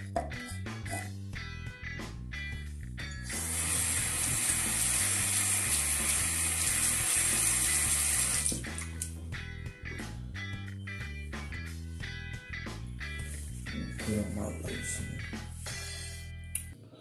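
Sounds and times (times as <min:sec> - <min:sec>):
background music with bass line: 0:00.0 - 0:16.8
tap water splashing on hands: 0:04.9 - 0:09.1.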